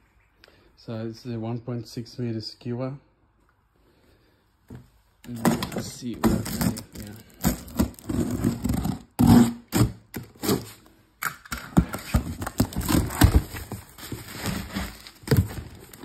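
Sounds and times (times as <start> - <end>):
utility knife slitting cardboard: 5.3 - 10.8, 11.8 - 16.0
bubble wrap handled: 5.4 - 8.8, 11.8 - 16.0.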